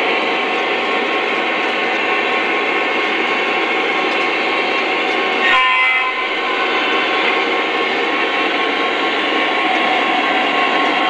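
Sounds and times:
model train horn: 5.4s - 6.3s.

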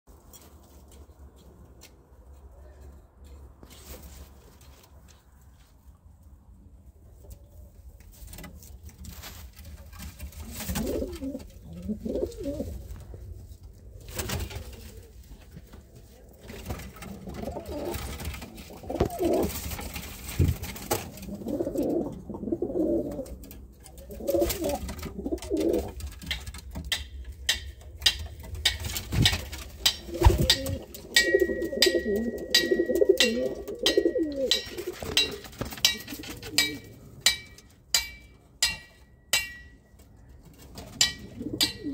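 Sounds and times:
pigeons cooing: 10.4s - 15.7s, 16.9s - 26.0s, 29.8s - 37.0s, 41.2s - 41.9s.

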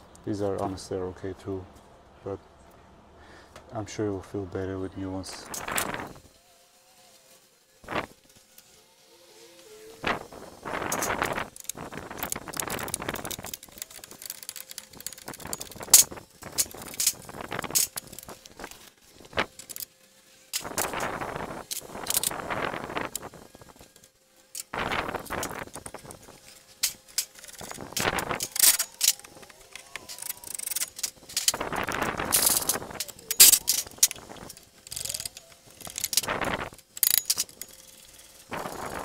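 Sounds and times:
metal hand tools clinking: 24.6s - 36.4s, 37.0s - 39.0s.

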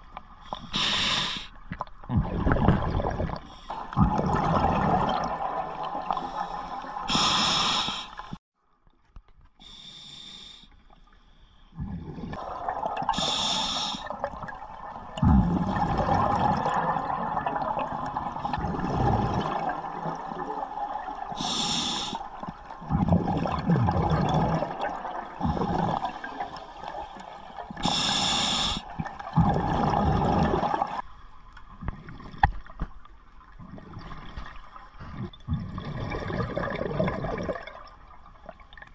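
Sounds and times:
regulator inhalation hiss: 0.5s - 1.5s, 6.2s - 8.3s, 13.2s - 14.2s, 21.4s - 22.3s, 27.8s - 28.9s
exhaled air bubbling: 1.7s - 8.4s, 11.8s - 31.0s, 33.5s - 38.8s.

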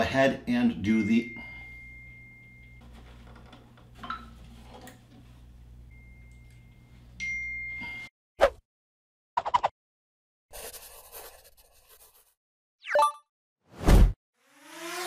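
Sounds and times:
faint hum: 1.2s - 8.0s.

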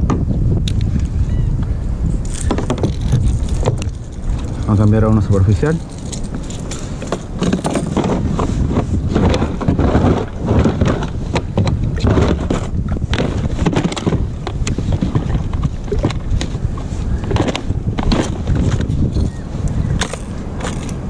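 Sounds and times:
wind buffeting microphone: 0.0s - 21.0s
sharp clicks and knocks: 2.3s - 4.7s.

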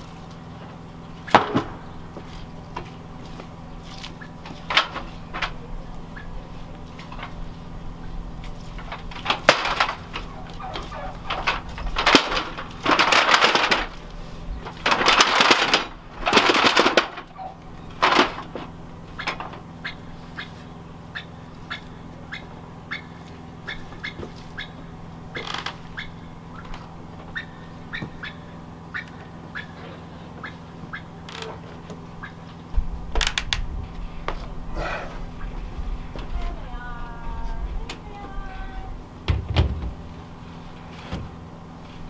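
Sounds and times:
metal ladder scraping and rattling: 8.4s - 20.6s.

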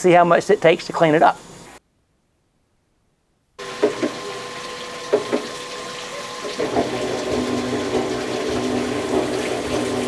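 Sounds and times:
fluid streaming and splashing: 3.6s - 10.0s.

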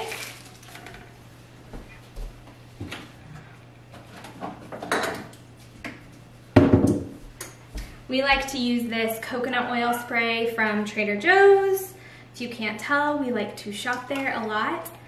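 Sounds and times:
items clattering in kitchen: 0.0s - 1.2s, 2.8s - 6.0s.

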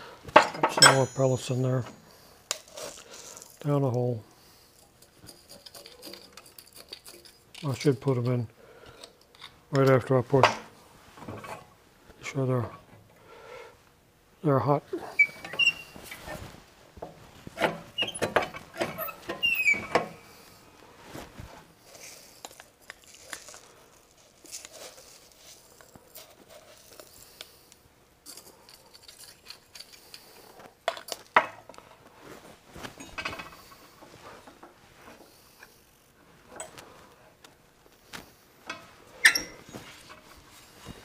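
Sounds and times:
small parts clattering: 0.4s - 1.9s.

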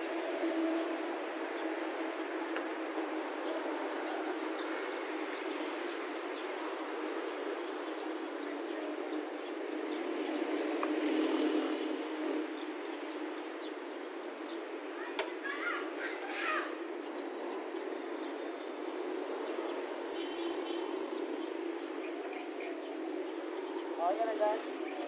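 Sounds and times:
street traffic: 0.0s - 25.0s
vehicle passing close: 9.8s - 12.8s.

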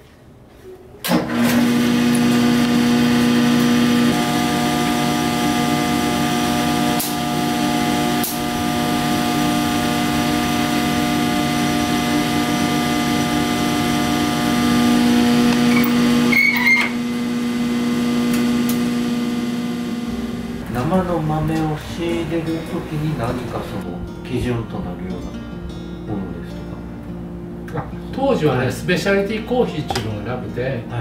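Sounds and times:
coffee roaster motor and fan hum: 1.3s - 23.8s.

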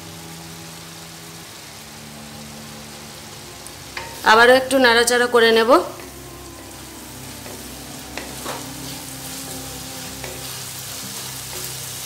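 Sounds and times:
masala sizzling in oil: 0.0s - 12.0s.

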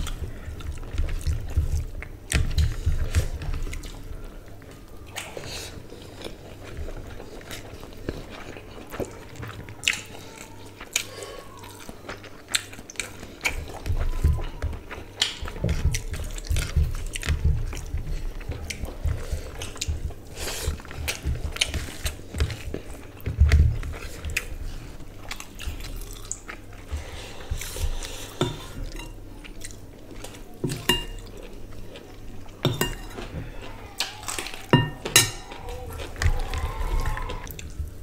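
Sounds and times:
people chewing food: 0.0s - 38.0s
spoon clinking against bowls: 30.7s - 31.3s, 32.6s - 33.3s, 34.7s - 35.6s.

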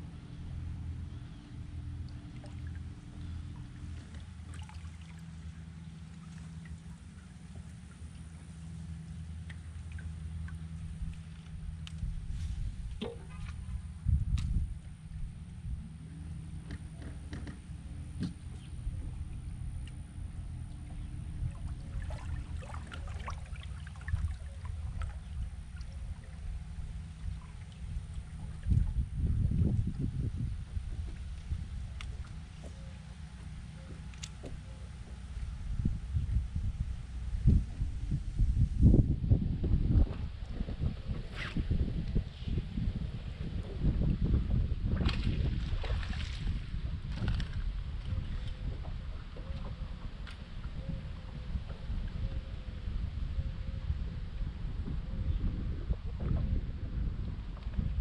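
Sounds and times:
electric trolling motor humming: 0.0s - 39.0s
water lapping against hull: 0.0s - 58.0s
small splashes and ticks: 2.0s - 12.3s, 12.9s - 15.6s, 16.6s - 30.1s, 30.8s - 35.5s, 44.8s - 52.2s.

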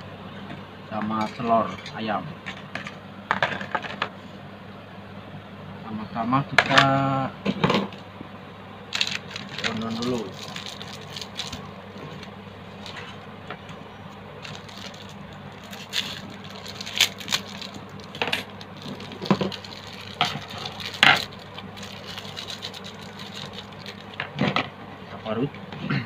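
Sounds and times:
steady low hum: 0.0s - 26.0s
plastic wrapping crinkling: 8.9s - 13.3s, 14.1s - 24.3s.

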